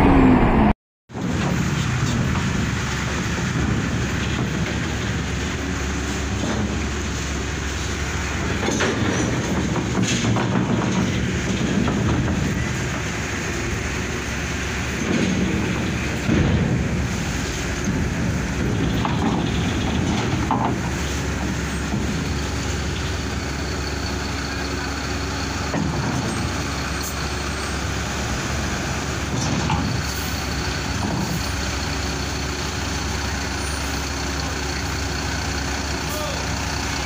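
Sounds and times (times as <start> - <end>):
diesel bus engine rumbling: 0.0 - 37.0
knocks on steel ramp: 8.4 - 13.3, 14.8 - 23.0.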